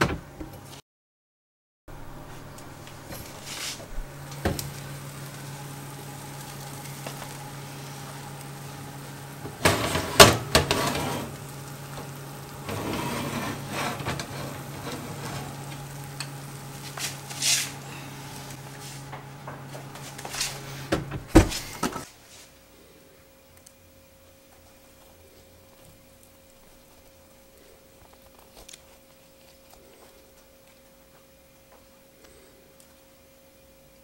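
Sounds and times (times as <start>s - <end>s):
electric oven humming: 1.9s - 34.0s
metal tray scraping on oven rack: 9.4s - 21.8s.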